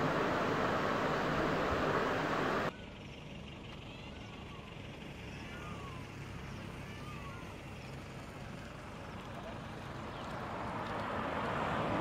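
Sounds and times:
loud rush of noise: 0.0 - 2.7
quiet outdoor background: 0.0 - 10.8.

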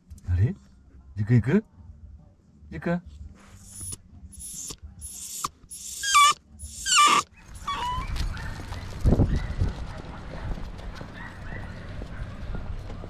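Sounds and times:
dog whining in high squeals: 3.7 - 8.3.

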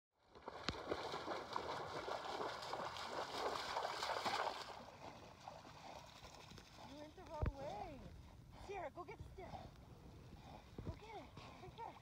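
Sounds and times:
dog splashing through water: 0.4 - 7.3.

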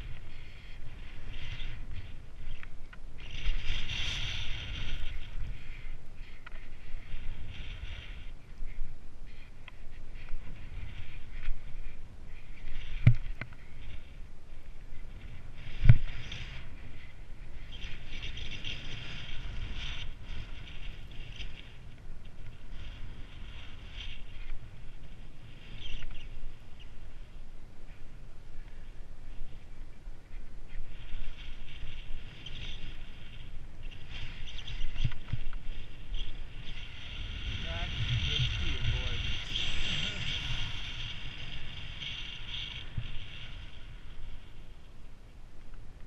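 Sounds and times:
snow hissing and scraping: 0.0 - 2.6, 3.2 - 13.0, 22.6 - 27.3, 30.8 - 45.0
wind rumble on microphone: 0.0 - 46.0
sliding over snow hiss: 35.8 - 44.8.

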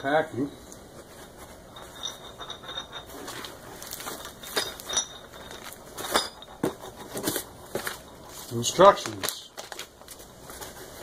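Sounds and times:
plastic bags rustling: 3.2 - 6.4, 7.1 - 11.0.

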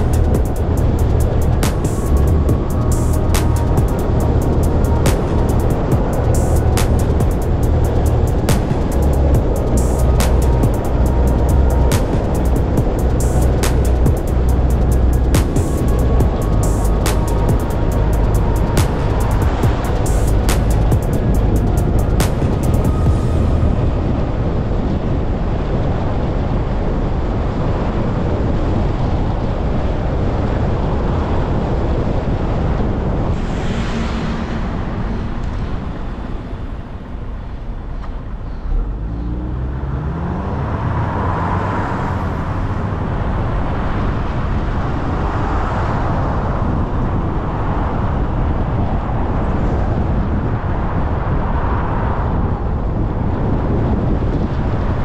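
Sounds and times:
car engine accelerating: 0.0 - 25.4, 38.2 - 44.9.

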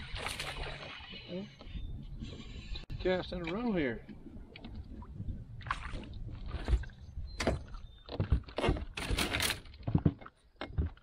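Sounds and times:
water splashing: 0.0 - 1.4
knocks and rattles on boat: 5.8 - 11.0.

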